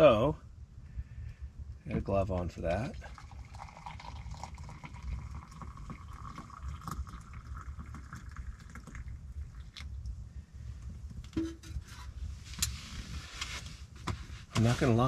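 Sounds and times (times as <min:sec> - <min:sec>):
coffee pouring into a cup: 0:02.8 - 0:10.0.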